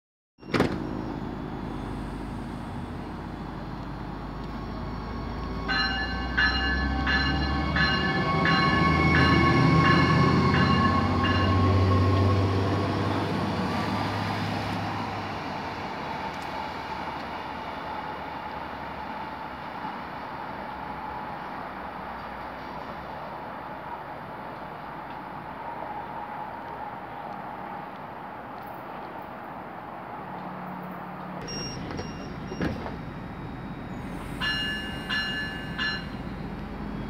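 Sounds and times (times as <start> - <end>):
diesel train engine rumbling: 0.4 - 37.0
warning bell ringing: 5.7 - 11.8, 31.4 - 32.8, 34.4 - 36.3.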